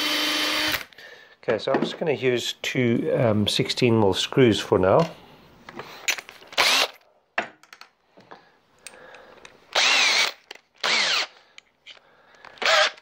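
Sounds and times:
cordless drill driving screws: 0.0s - 0.9s, 6.5s - 7.0s, 9.7s - 11.4s, 12.5s - 13.0s.

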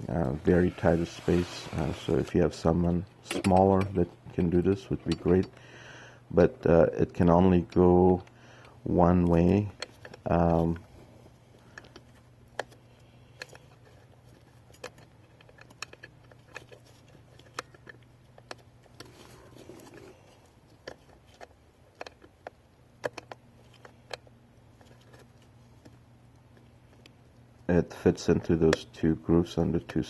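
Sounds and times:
faint steady hum: 0.0s - 30.0s
plastic parts clicking: 11.6s - 19.2s, 20.7s - 26.0s.

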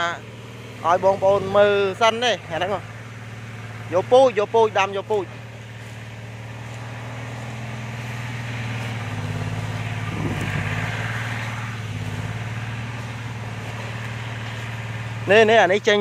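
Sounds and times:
motor engine humming: 0.0s - 16.0s
dry leaves rustling underfoot: 4.9s - 16.0s.

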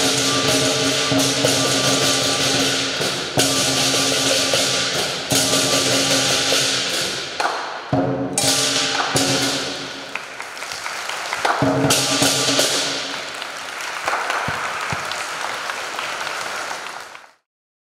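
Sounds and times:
lion dance drum gong and cymbals: 0.0s - 10.2s, 11.4s - 13.4s
audience applauding: 9.8s - 17.4s.

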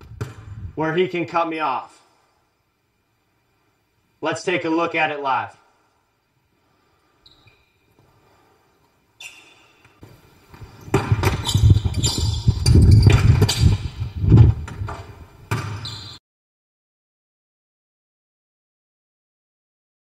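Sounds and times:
sneakers stomping and scuffing: 10.0s - 15.8s
basketball bouncing on hardwood floor: 10.5s - 16.1s.

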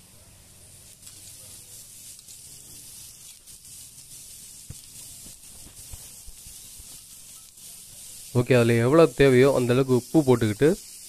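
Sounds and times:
food sizzling on a griddle: 0.0s - 11.0s.

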